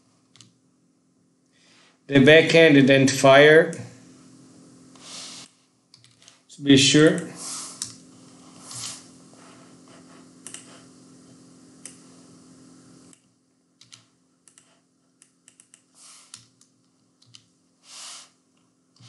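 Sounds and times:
low steady hum: 0.0s - 19.0s
computer keyboard keystrokes: 10.4s - 10.7s, 13.8s - 17.5s.

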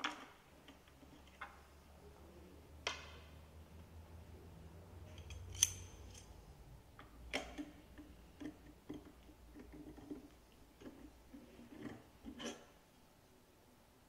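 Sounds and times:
allen key clicking in screw: 5.1s - 6.3s.

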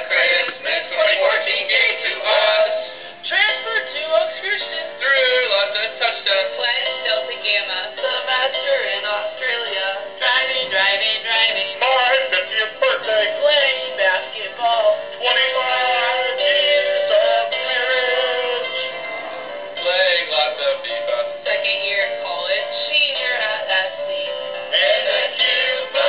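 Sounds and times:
sound chip playing christmas song: 0.0s - 26.0s.

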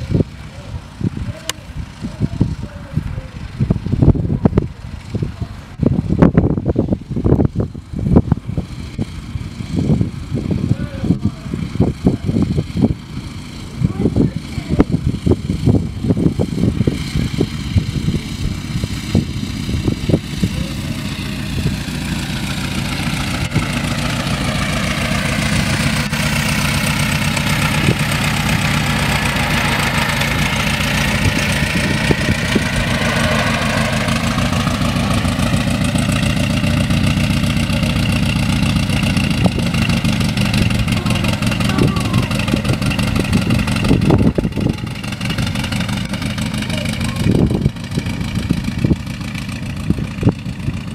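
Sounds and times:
car engine driving by: 16.8s - 50.9s.

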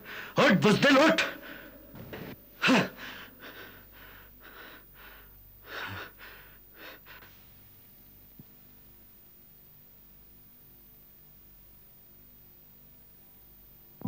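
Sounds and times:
man gasping breaths: 0.0s - 0.4s, 1.4s - 7.4s
man crying out: 2.6s - 3.8s.

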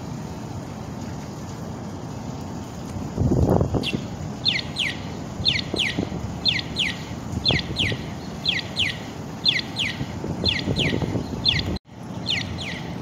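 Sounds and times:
street noise: 0.0s - 13.0s
wind: 0.0s - 13.0s
crossing signal chirping: 3.8s - 13.0s.

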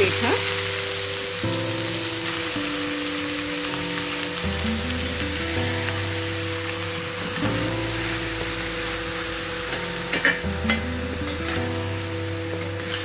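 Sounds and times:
soft acoustic music: 0.0s - 13.0s
vegetables sizzling in hot oil: 0.0s - 13.0s.

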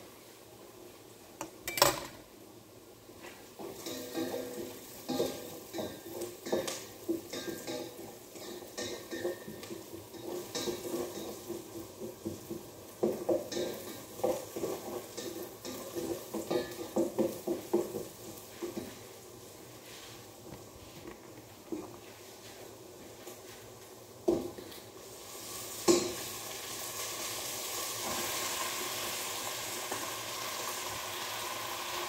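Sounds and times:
spatula scraping and knocking a pot: 3.6s - 19.0s.

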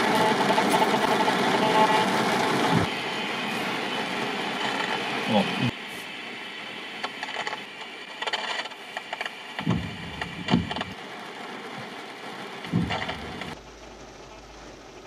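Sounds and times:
rain on a car: 0.0s - 15.0s
sharp knocks: 9.6s - 11.0s, 12.7s - 13.5s.

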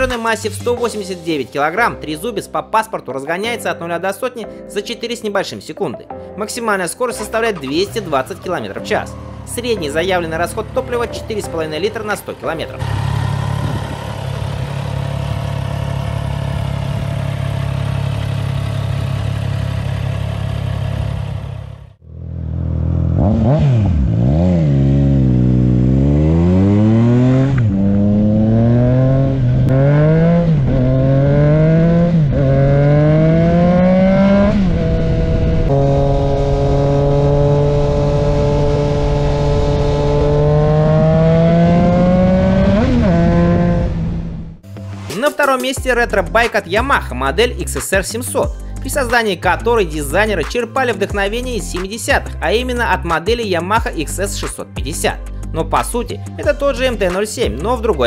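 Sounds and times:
motorcycle engine accelerating: 8.4s - 44.7s.

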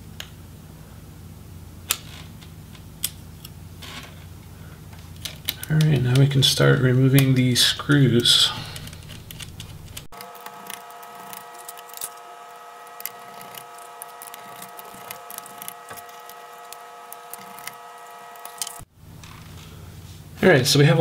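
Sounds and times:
steady high whine: 0.0s - 21.0s
screwdriver clicks and ticks: 8.8s - 12.2s, 12.8s - 18.8s.

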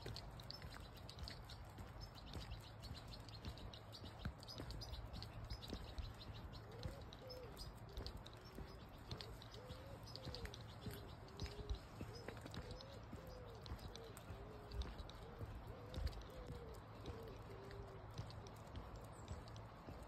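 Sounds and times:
footsteps on tarmac: 0.0s - 20.0s
small birds chirping faintly: 0.0s - 20.0s
pigeon cooing: 6.6s - 18.8s.

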